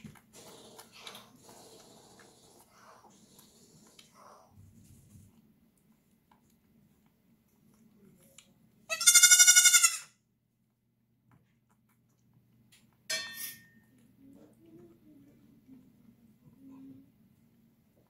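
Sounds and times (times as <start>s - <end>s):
goat kid bleating: 8.9s - 10.1s.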